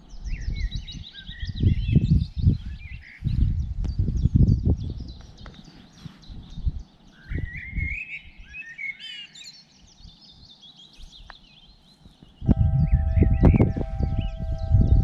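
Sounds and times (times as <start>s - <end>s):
bird warbling song: 0.0s - 15.0s
songbirds singing and chirping: 0.0s - 15.0s
low thumps: 12.4s - 15.0s.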